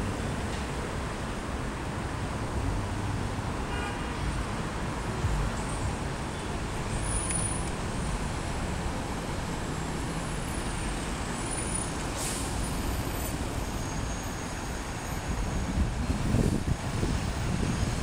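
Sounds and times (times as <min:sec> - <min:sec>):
street traffic rumble: 0:00.0 - 0:18.0
short air hiss: 0:12.1 - 0:12.8.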